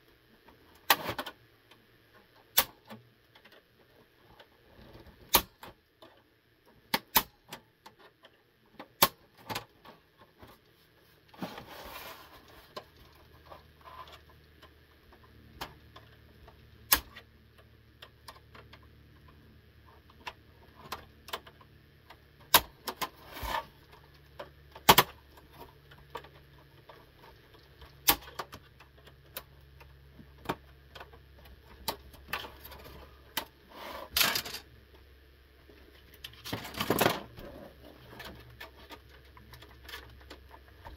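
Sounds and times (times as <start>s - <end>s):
plastic clicks and snaps: 2.5s - 3.6s, 15.6s - 19.4s.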